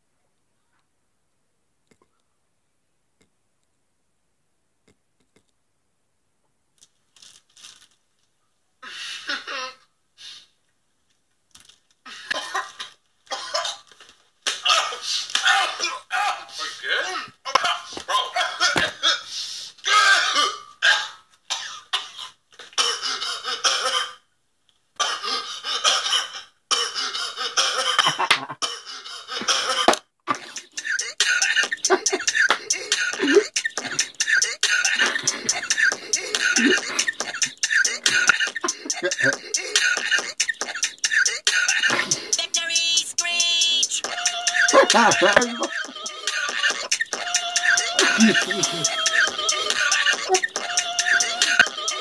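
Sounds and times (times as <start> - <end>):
man choking and coughing: 12.1 - 13.9, 25.0 - 42.4, 44.1 - 47.0, 47.6 - 50.6
hissy scratchy bursts: 30.6 - 52.0.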